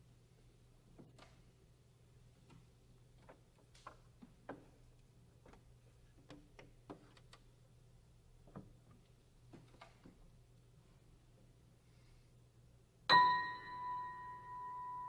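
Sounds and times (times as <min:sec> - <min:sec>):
faint clicks and taps: 0:02.4 - 0:07.6, 0:08.4 - 0:10.3.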